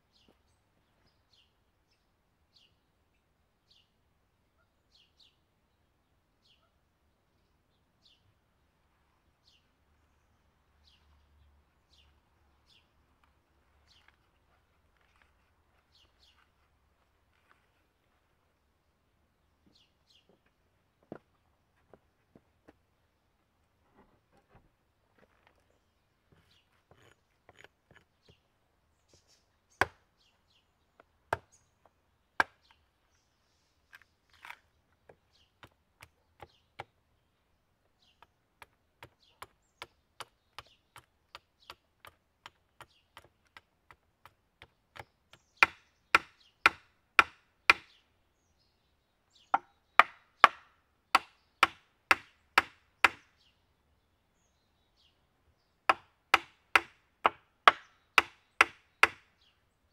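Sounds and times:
hatchet striking wood: 29.8 - 30.0, 31.3 - 31.6, 32.4 - 32.8, 38.6 - 48.0, 49.6 - 53.3, 55.9 - 59.3.

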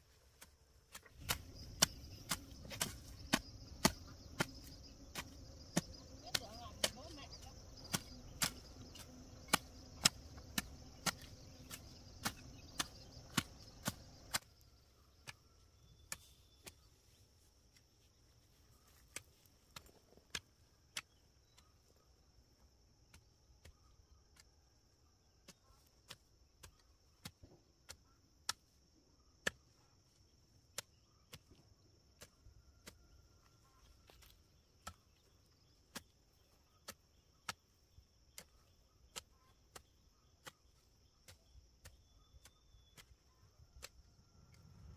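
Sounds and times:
sharp chopping strikes: 0.9 - 7.1, 7.8 - 14.6.

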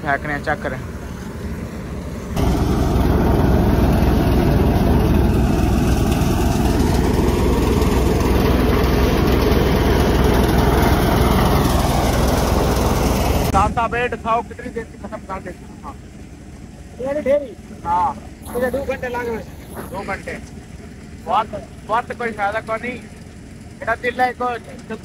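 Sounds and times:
threshing machine running: 1.8 - 14.5, 18.3 - 25.0.

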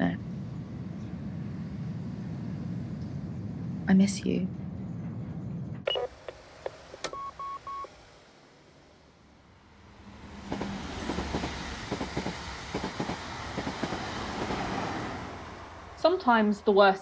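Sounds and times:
train rumbling and clattering: 0.0 - 5.9, 9.5 - 17.0
short beeps: 7.1 - 7.9.

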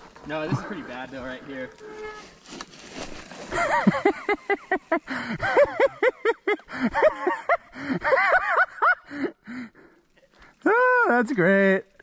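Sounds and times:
high-pitched breathless laughter: 3.5 - 9.9.

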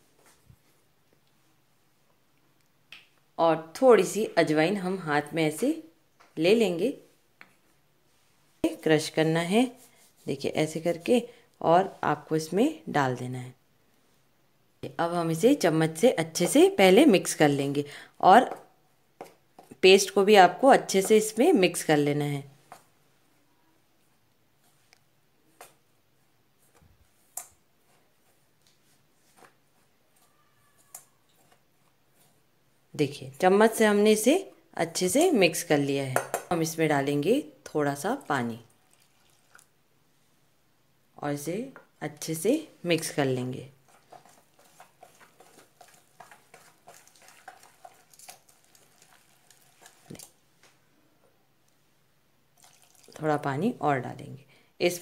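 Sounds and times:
spoon scraping in bowl: 43.8 - 50.3.

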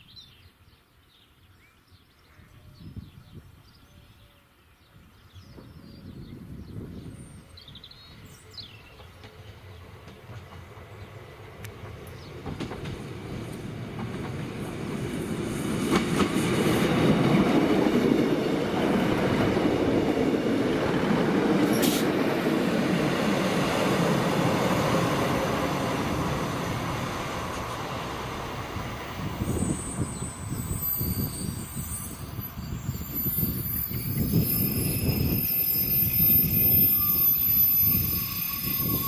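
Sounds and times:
diesel train passing: 6.1 - 39.0
wheel squeal: 29.0 - 39.0.

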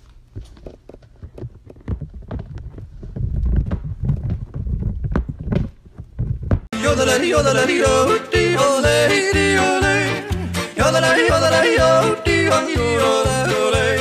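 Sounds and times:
knocks and deep thuds: 1.2 - 6.7
yodelling music: 6.7 - 14.0.

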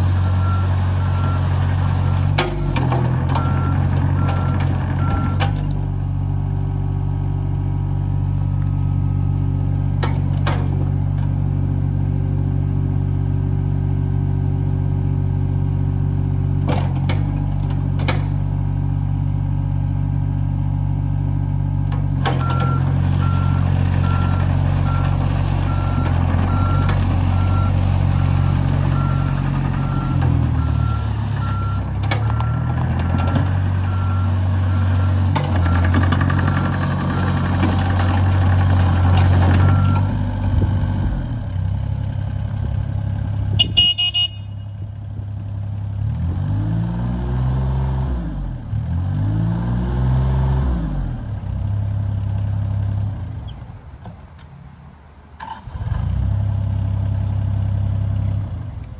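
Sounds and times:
excavator diesel engine running: 0.0 - 46.7
sharp clunks: 16.6 - 18.4.

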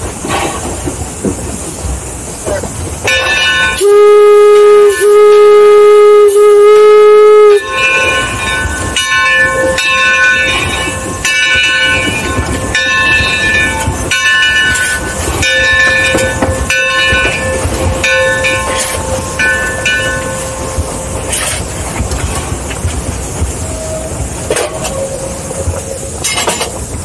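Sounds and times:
steam exhaust: 0.0 - 8.8
locomotive bell ringing: 3.0 - 22.5.

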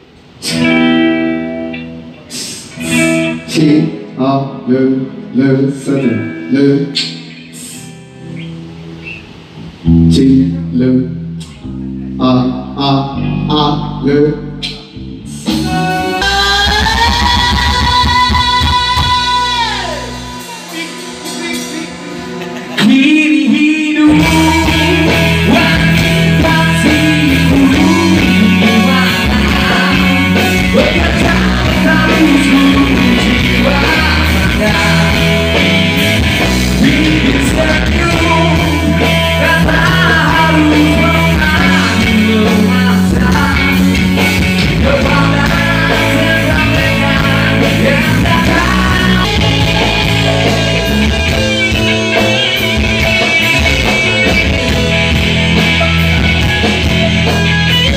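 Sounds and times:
drums: 0.0 - 4.2, 14.4 - 57.9
bass guitar: 0.0 - 57.9
electric guitars: 0.0 - 57.9
person singing lead: 15.4 - 35.6, 36.7 - 43.9, 44.6 - 51.4.

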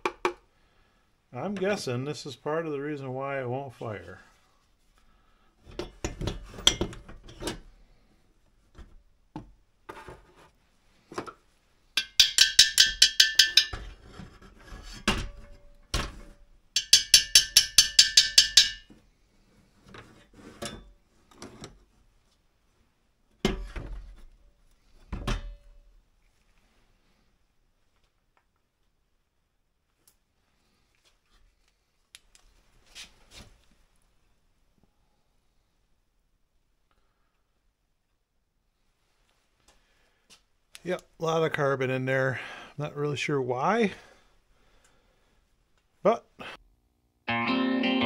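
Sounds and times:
rapid ringing metallic taps: 12.0 - 13.8, 16.8 - 18.9.

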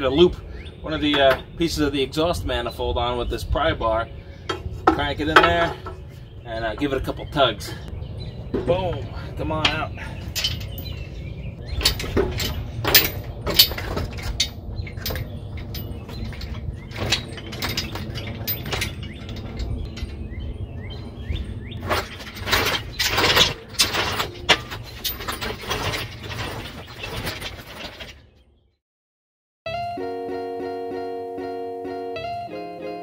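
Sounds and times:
birds chirping: 0.0 - 28.8
metal clanks and knocks: 1.0 - 1.6, 4.4 - 7.2, 8.4 - 28.3.

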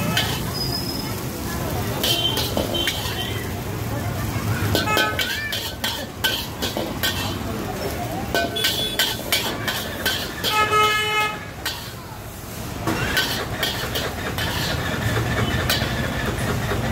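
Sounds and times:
street rumble: 0.0 - 16.9
metal ladle clanking in iron wok: 0.2 - 0.5, 2.0 - 3.2, 4.7 - 7.5, 8.3 - 10.7, 12.8 - 16.6
vehicle horn honking: 10.5 - 11.4.

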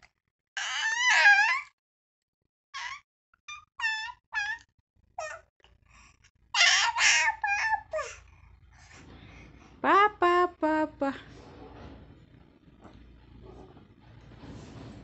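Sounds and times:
baby babbling: 0.6 - 1.7, 2.8 - 4.6, 5.2 - 5.4, 6.6 - 8.2.

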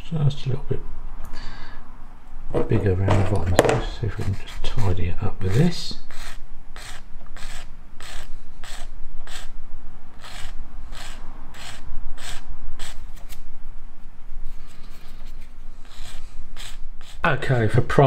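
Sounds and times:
sanding strokes scraping: 4.1 - 9.6, 10.2 - 13.4, 14.7 - 17.2.

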